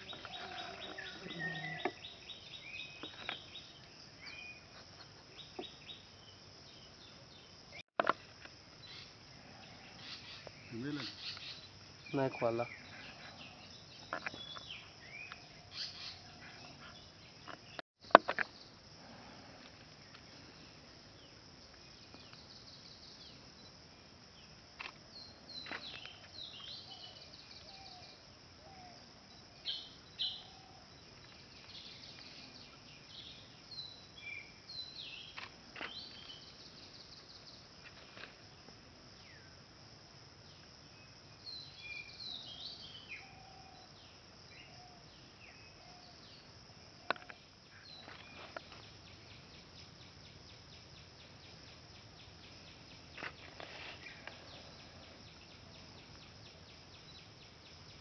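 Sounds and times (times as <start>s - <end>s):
birds calling and chirping: 0.0s - 7.6s, 8.8s - 17.8s
high insect buzz: 0.0s - 28.4s.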